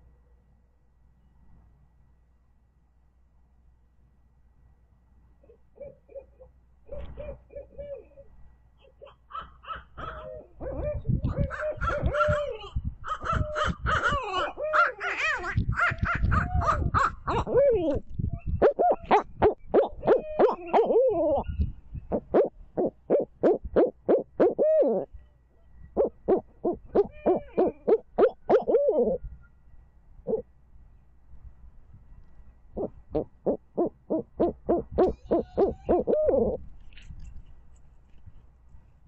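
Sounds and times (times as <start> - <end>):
owls hooting: 5.4 - 18.0, 26.0 - 29.3, 32.8 - 36.6.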